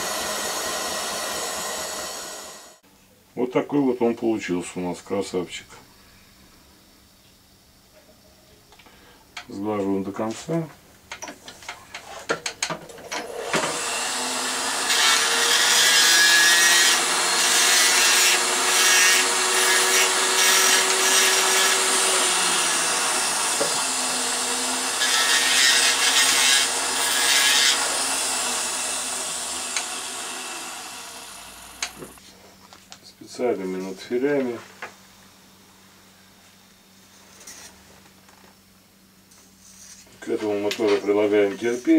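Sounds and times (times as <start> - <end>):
rotary tool motor whining: 13.1 - 32.2.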